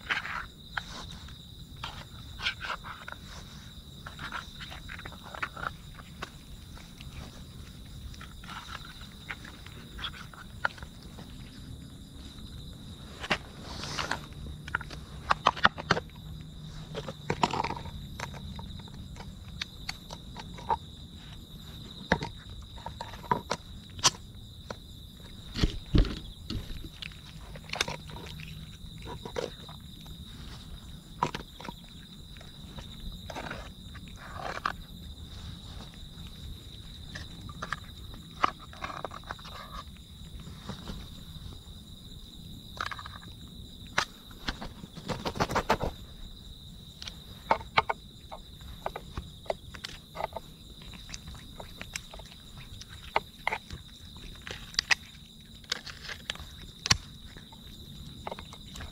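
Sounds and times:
cats crunching food: 0.0 - 41.8, 42.7 - 46.2, 46.8 - 58.9
insect trill: 0.0 - 58.9
thump: 25.6 - 26.7.

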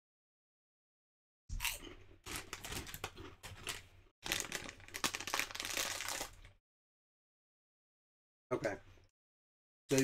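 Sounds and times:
foil chip bag crinkling: 2.2 - 6.6.

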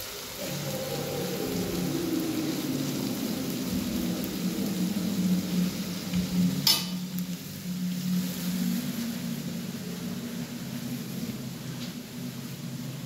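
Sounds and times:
onions sizzling in oil: 0.0 - 13.0
low hum: 0.3 - 13.0.

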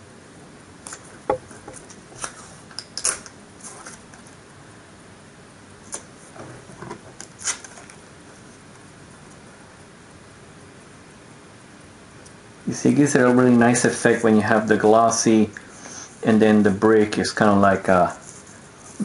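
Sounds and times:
card pieces and tape crinkling: 1.8 - 4.2.

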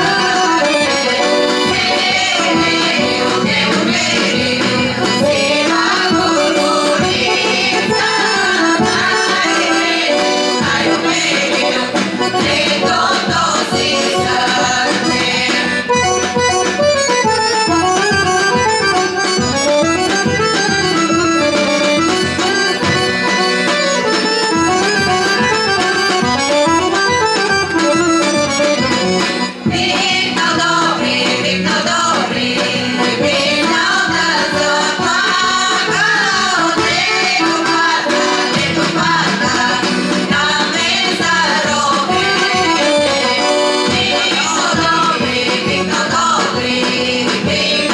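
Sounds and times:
women's choir singing: 0.0 - 16.5, 29.6 - 47.9
accordion: 0.0 - 47.9
drum beat: 1.6 - 47.9.

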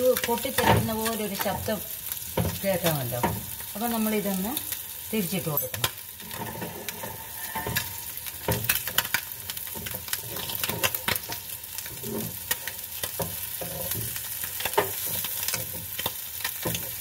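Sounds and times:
fish sizzling in oil: 0.0 - 17.0
spatula scraping and tapping pan: 5.8 - 17.0.

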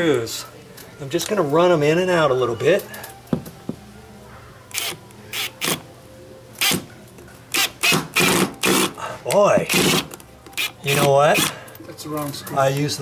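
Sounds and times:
cordless drill driving screws: 4.7 - 5.8, 7.5 - 8.9, 9.7 - 11.5.

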